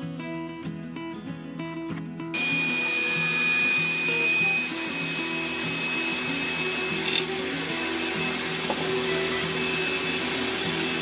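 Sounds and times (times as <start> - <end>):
background music: 0.0 - 11.0
table saw cutting wood: 2.4 - 11.0.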